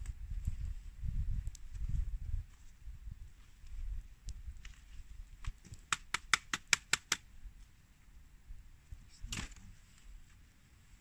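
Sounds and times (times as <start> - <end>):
wind rumble on microphone: 0.0 - 5.8.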